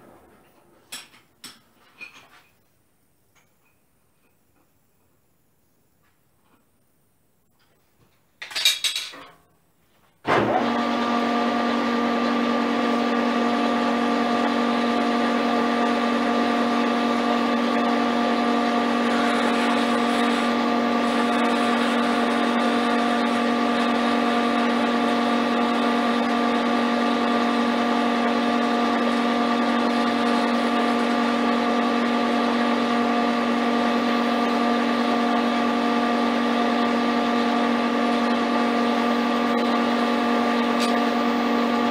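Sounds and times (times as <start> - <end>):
metal lathe humming: 12.1 - 41.9.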